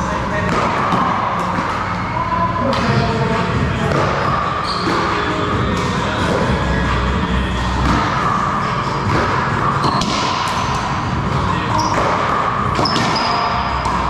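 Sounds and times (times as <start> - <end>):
wall fans humming: 0.0 - 14.0
sneaker squeaks: 0.4 - 6.8, 7.4 - 14.0
racquetball cracking off wall: 9.1 - 10.6.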